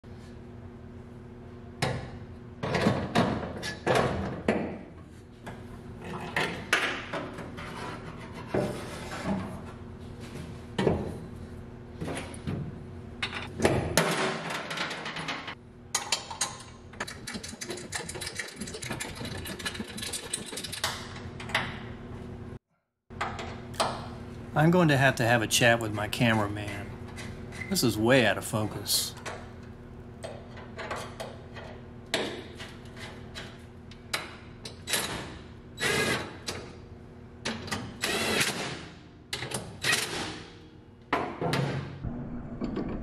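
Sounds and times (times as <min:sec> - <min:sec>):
steady low hum: 0:23.5 - 0:30.4.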